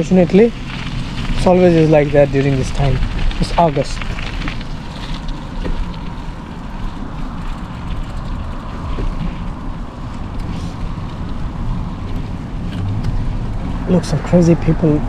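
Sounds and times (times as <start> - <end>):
bicycle tyre noise: 0.0 - 15.0
wind rumble on microphone: 0.0 - 15.0
faint rattling ticks: 0.3 - 11.4.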